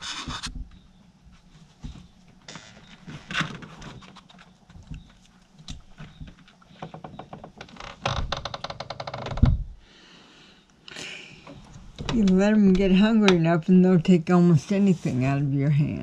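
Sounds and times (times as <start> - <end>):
raccoon chewing crunches: 3.6 - 7.1.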